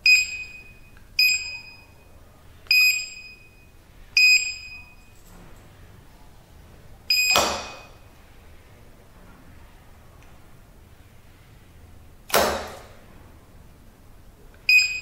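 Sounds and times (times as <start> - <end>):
keypad buzzer beeps: 0.0 - 2.0, 2.7 - 5.1, 7.1 - 8.0, 14.7 - 15.0.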